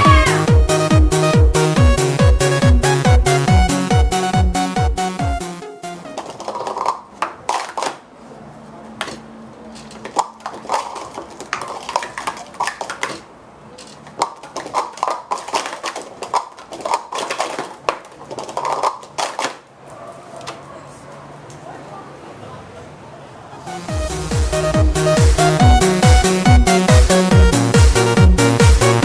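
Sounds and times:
plastic cups clattering: 0:06.1 - 0:08.0, 0:09.0 - 0:19.7.

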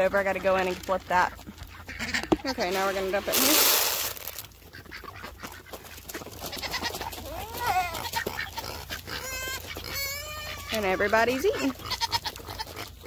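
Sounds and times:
ducks pecking at feed: 0:00.0 - 0:13.0
goats bleating: 0:06.4 - 0:13.0.

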